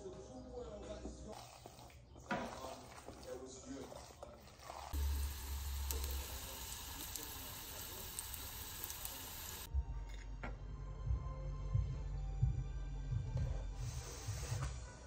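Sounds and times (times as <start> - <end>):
meat sizzling in hot oil: 5.0 - 9.7.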